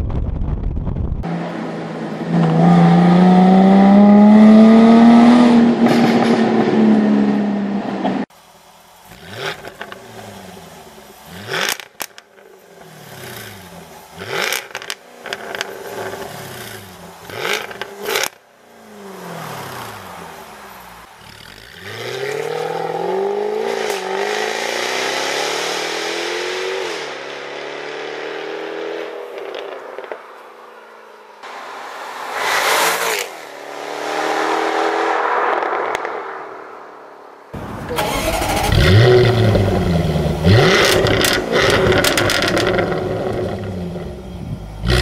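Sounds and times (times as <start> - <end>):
car accelerating: 1.2 - 8.3, 9.1 - 30.1, 37.6 - 45.0
car engine revving: 1.2 - 8.3, 37.6 - 45.0
exhaust pops and crackles: 14.4 - 18.4, 39.3 - 45.0.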